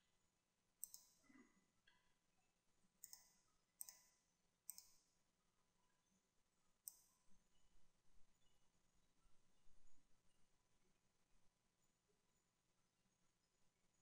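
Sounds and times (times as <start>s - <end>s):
computer mouse button clicks: 0.8s - 1.2s, 3.0s - 4.1s, 4.7s - 5.0s.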